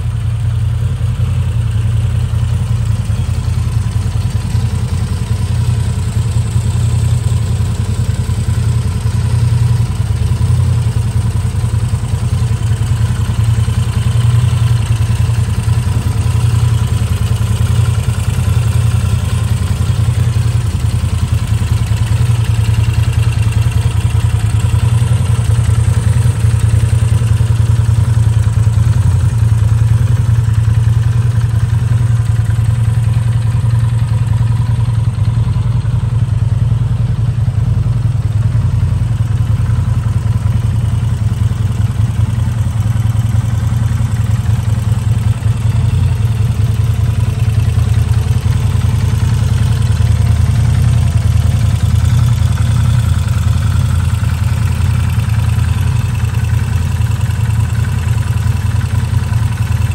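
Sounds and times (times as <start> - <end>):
motorcycle engine idling: 0.0 - 59.9.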